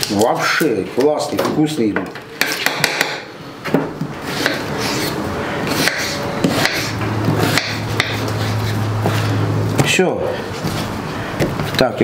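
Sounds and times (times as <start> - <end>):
knife slicing onion: 4.2 - 9.2.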